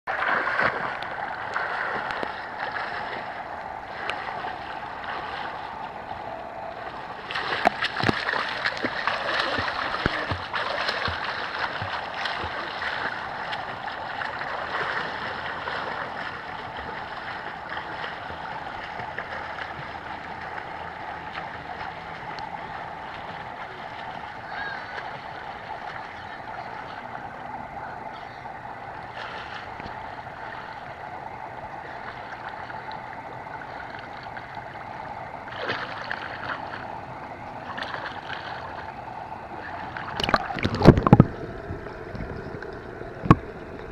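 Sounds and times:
water splashing from swimmer: 0.1 - 43.9.

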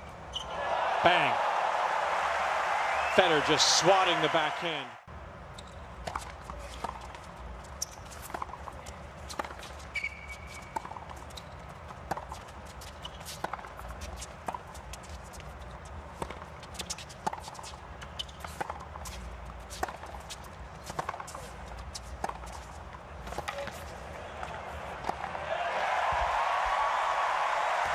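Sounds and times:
players' footsteps: 0.6 - 5.0.

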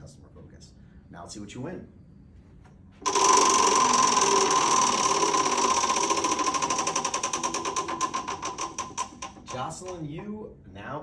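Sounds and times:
prize wheel flapper clicking: 3.0 - 10.1.

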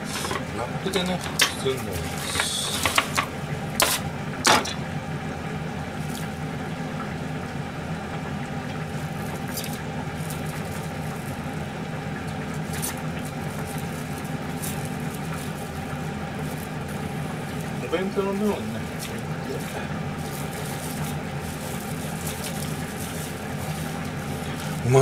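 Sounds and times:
plastic film rustling: 0.0 - 3.3, 10.2 - 11.6, 12.5 - 25.0
steady low hum: 0.0 - 25.0
cling wrap tearing: 18.8 - 24.9.

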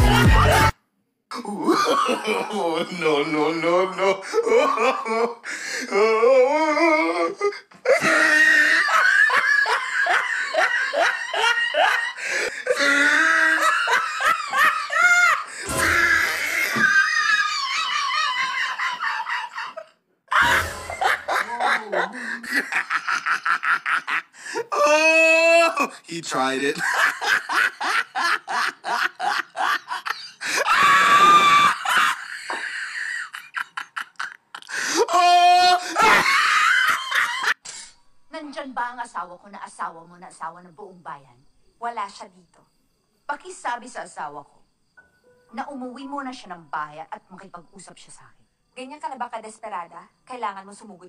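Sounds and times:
person laughing in bursts: 7.8 - 24.6, 26.8 - 34.8, 35.8 - 37.6
long high-pitched scream: 7.9 - 11.0, 11.8 - 21.1, 24.5 - 25.9, 30.2 - 33.4, 34.6 - 37.6.

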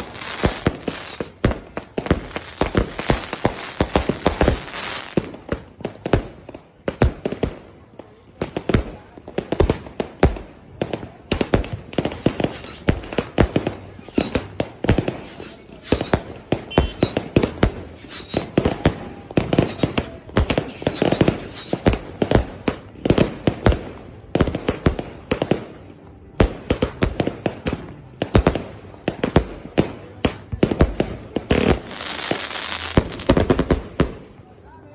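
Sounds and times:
fireworks bangs and crackles: 0.0 - 34.7
faint high chirp: 11.9 - 18.8.

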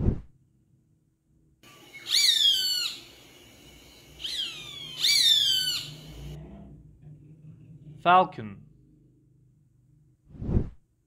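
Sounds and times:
hawk screaming: 4.2 - 6.1.

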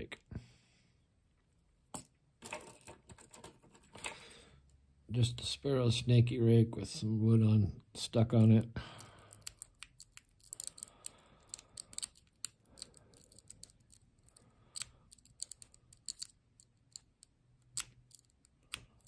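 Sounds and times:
lock pick clicking in padlock: 9.4 - 19.0
lock pick scraping: 9.4 - 19.0.

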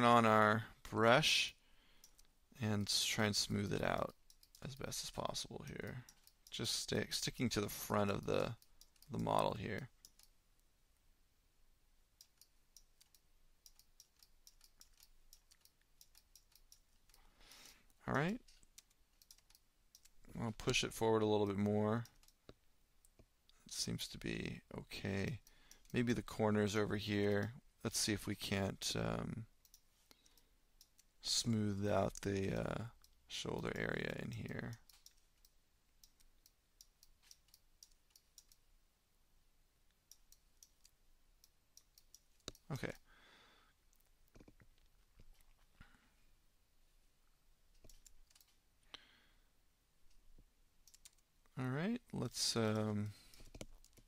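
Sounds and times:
mouse and keyboard clicks: 47.7 - 48.6, 52.7 - 54.0.

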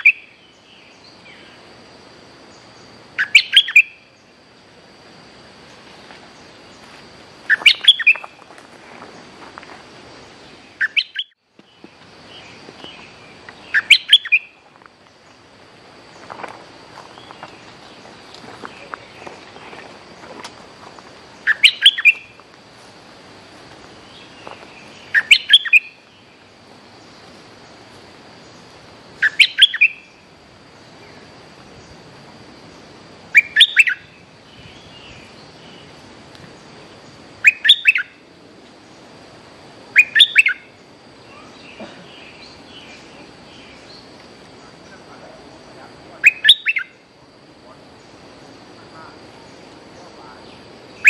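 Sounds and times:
bird singing bright notes: 3.2 - 4.0, 7.5 - 8.4, 10.5 - 14.6, 21.4 - 22.4, 24.0 - 26.3, 29.2 - 30.2, 33.4 - 35.9, 37.4 - 38.2, 40.0 - 40.6, 46.2 - 47.0.

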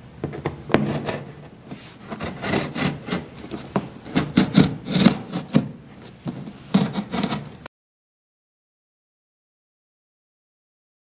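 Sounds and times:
knife cutting cardboard: 0.4 - 7.6.

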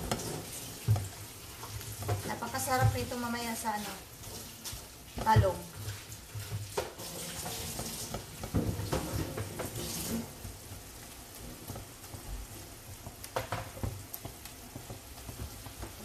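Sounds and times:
spatula scraping pan: 0.0 - 12.3
meat sizzling in a pan: 0.0 - 16.0.

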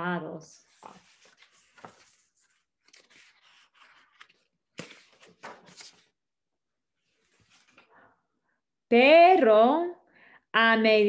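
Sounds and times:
book pages rustling: 0.6 - 6.2, 7.0 - 7.9.

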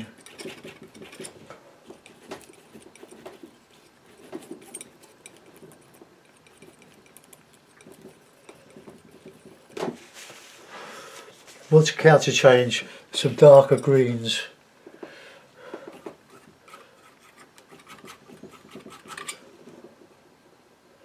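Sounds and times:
palette knife scraping paint: 0.0 - 10.8, 15.8 - 19.5.

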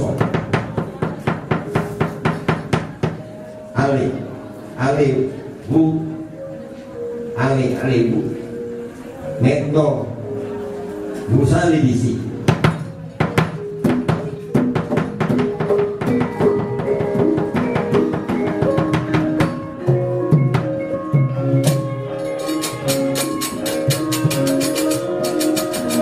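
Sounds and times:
metallophones ringing: 1.6 - 26.0
drum strokes: 12.4 - 26.0
sharp wooden knocks and clacks: 12.5 - 19.6.

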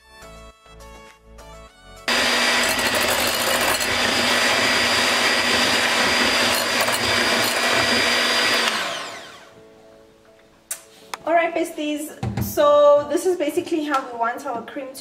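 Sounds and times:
electric hand mixer whipping: 2.1 - 9.6.

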